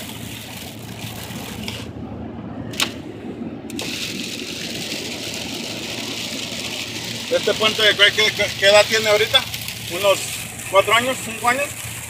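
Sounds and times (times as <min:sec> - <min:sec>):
rain on car: 0:03.8 - 0:12.0
tyres hissing on wet road: 0:03.8 - 0:12.0.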